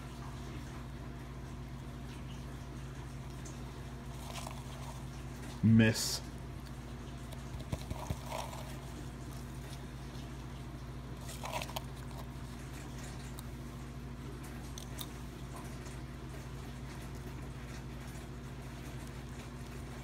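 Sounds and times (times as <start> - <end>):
steady low hum: 0.0 - 20.0
chameleon crunching a worm: 4.1 - 5.6, 6.6 - 10.3, 11.1 - 13.6, 14.5 - 15.7.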